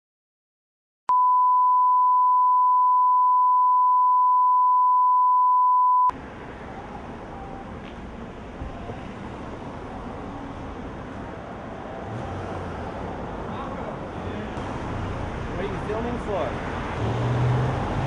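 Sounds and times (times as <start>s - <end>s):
street traffic noise: 6.1s - 18.0s.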